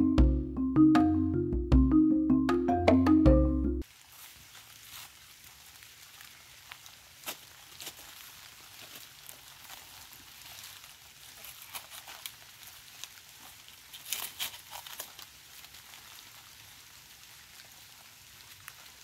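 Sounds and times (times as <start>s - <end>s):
banana leaves rustling and crackling: 3.8s - 19.0s.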